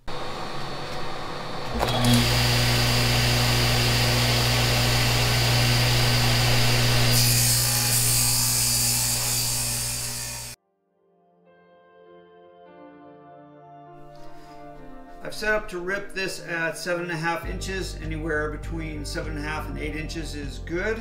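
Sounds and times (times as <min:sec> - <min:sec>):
power saw cutting: 0:00.0 - 0:10.6.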